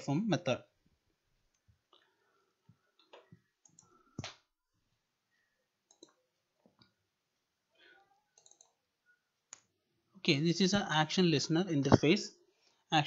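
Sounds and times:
computer mouse clicks: 3.0 - 4.5, 5.9 - 6.2, 8.3 - 8.8.

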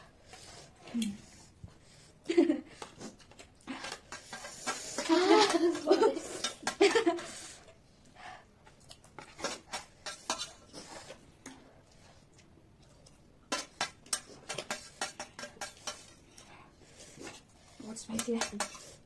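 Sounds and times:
cutlery clicking on plates: 18.1 - 18.8.

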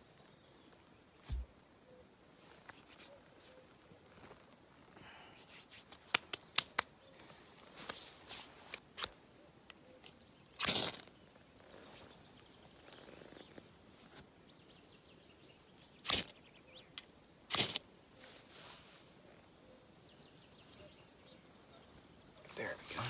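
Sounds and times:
faint bird chirps: 0.0 - 2.3, 2.9 - 5.3, 19.2 - 23.0
sharp cracks: 10.6 - 11.1, 16.0 - 16.4, 17.5 - 17.8.

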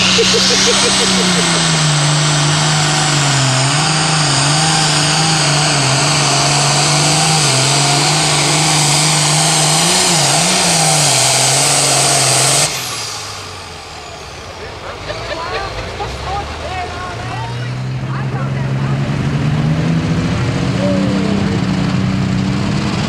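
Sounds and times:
high whine: 0.0 - 8.3
diesel engine running under load: 0.0 - 23.0.

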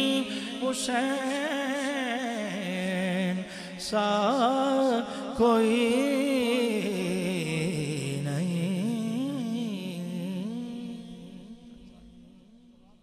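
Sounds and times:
man singing wordless melody: 0.0 - 12.6.

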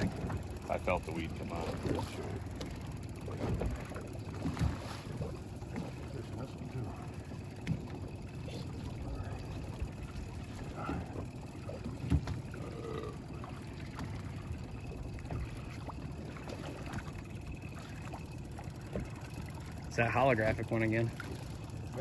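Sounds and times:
boat engine low rumble: 0.0 - 22.0
water noise: 0.0 - 22.0.

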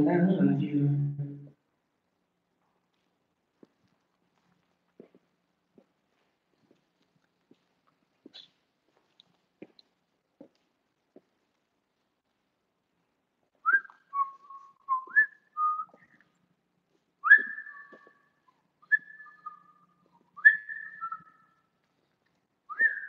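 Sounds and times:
person whistling a melody: 13.7 - 16.1.

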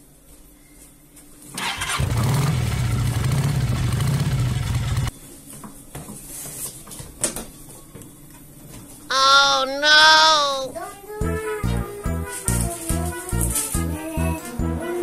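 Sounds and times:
motorcycle engine starting and running: 1.6 - 5.1.

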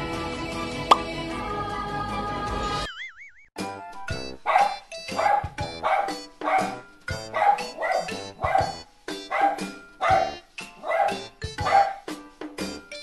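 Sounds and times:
background music: 0.0 - 2.9, 3.6 - 13.0
small dog barking: 4.4 - 12.1.

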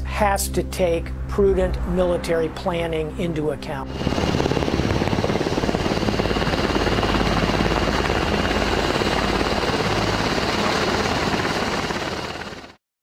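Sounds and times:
helicopter rotor chop: 3.8 - 12.8.

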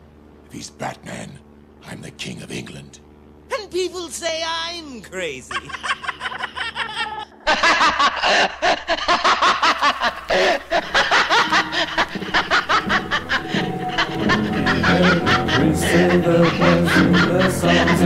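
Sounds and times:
man laughing: 5.3 - 18.0.

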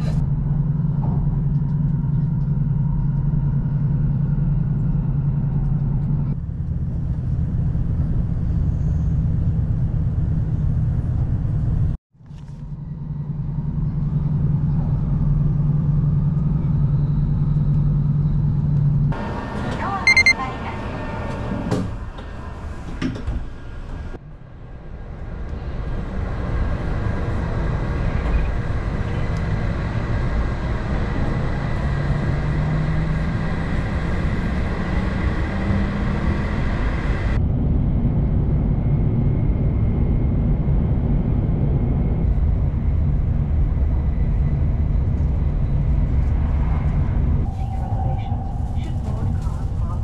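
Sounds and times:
train carriage rumble: 0.0 - 38.5, 40.8 - 50.0
train hum rising in pitch: 12.8 - 21.6, 25.3 - 37.4, 38.8 - 49.5
door chime tone: 20.1 - 20.4.

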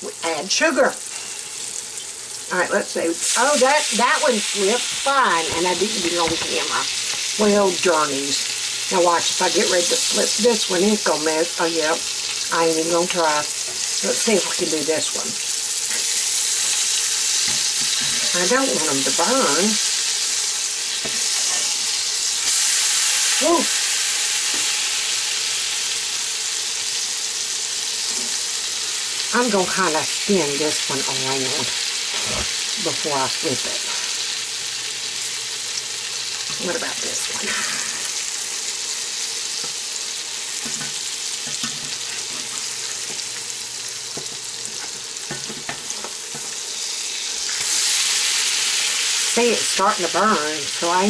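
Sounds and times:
potato cakes sizzling in oil: 0.0 - 51.0
short vocal sound: 32.2 - 32.5.

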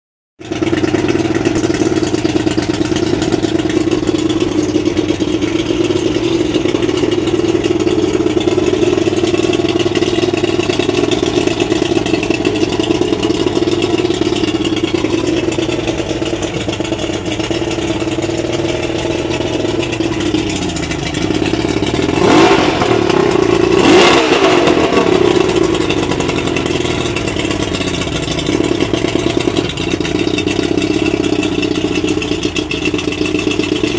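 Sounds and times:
outboard motor idling and revving: 0.4 - 33.9.

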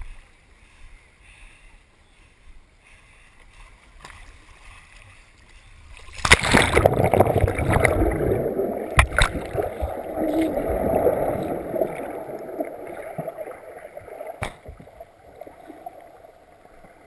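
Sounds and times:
muffled underwater rushing: 6.1 - 17.0.

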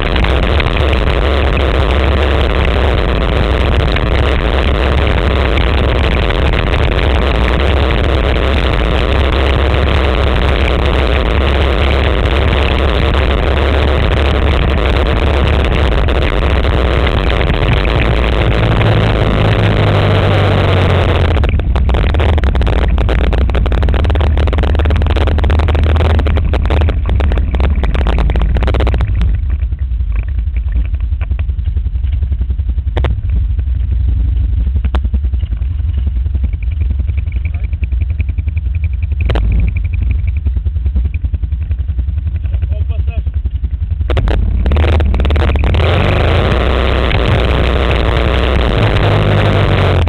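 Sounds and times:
loud rushing noise: 0.0 - 29.2, 44.1 - 50.0
quad bike engine running: 0.0 - 50.0.

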